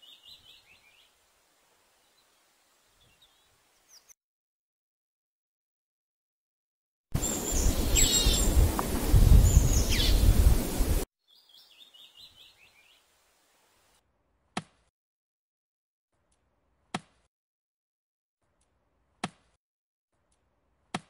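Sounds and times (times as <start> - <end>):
birds chirping: 0.0 - 1.2, 7.2 - 13.0
axe chopping tree trunk: 14.6 - 14.9, 16.9 - 17.2.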